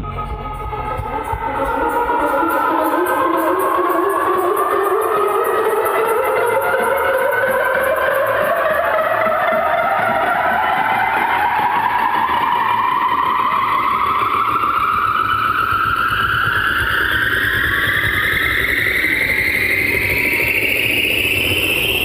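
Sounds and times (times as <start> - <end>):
rising synth tone: 0.0 - 16.4.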